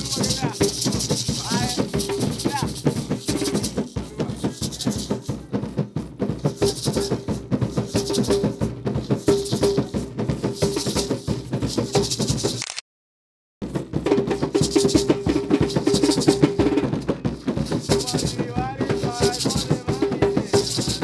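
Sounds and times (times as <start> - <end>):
shell rattles shaking: 0.0 - 5.3, 7.8 - 12.7, 14.6 - 16.6, 17.6 - 21.0
rhythmic drumming: 0.0 - 12.6, 13.6 - 21.0.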